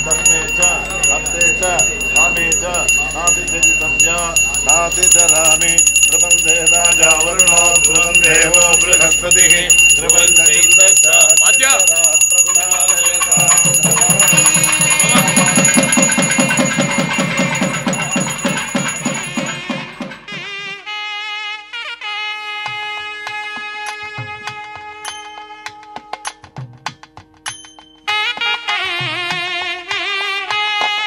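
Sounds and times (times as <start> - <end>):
bell ringing: 0.0 - 20.5
fast drumming: 0.0 - 20.7.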